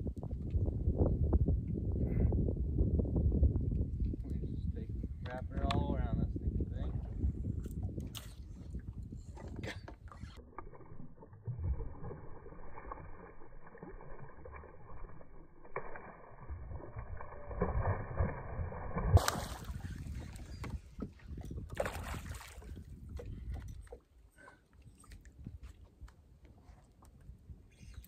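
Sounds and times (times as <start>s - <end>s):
wind: 0.0s - 28.0s
fish splashing in water: 10.6s - 20.3s.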